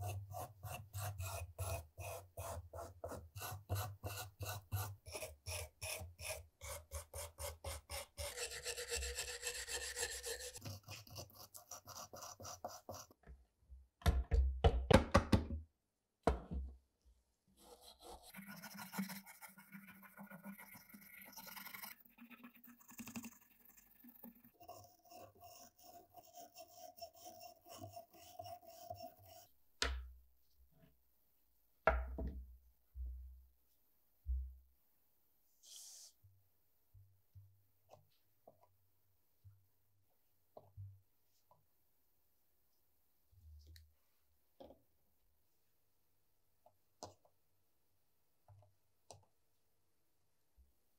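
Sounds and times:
knock: 14.0s - 15.6s, 31.9s - 32.4s.

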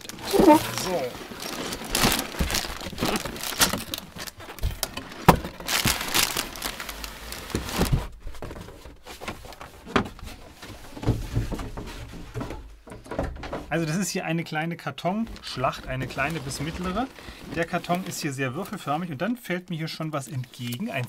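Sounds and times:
cardboard box sliding and scraping: 16.1s - 18.4s.

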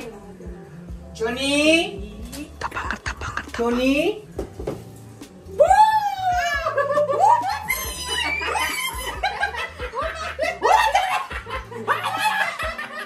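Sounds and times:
people laughing: 6.5s - 13.0s.

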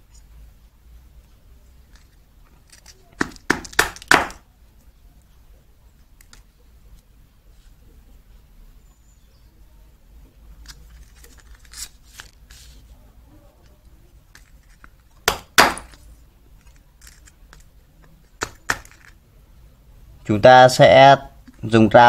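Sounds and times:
knife scraping plastic: 10.7s - 12.8s.

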